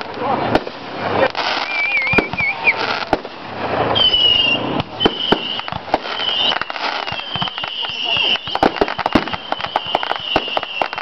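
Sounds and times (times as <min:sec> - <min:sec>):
crackling hiss: 0:00.0 - 0:11.0
fireworks bangs: 0:00.0 - 0:11.0
fireworks whistles: 0:00.0 - 0:11.0.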